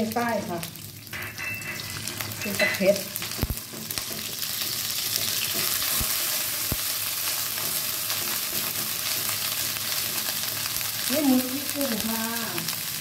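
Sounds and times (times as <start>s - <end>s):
paste sizzling in hot oil: 0.0s - 13.0s
wooden spatula scraping wok: 1.6s - 11.4s.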